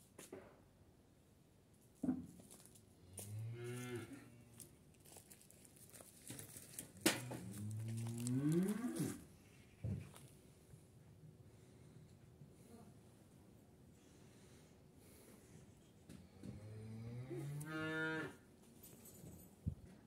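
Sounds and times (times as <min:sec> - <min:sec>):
cow mooing: 0:07.3 - 0:09.2, 0:16.9 - 0:18.4.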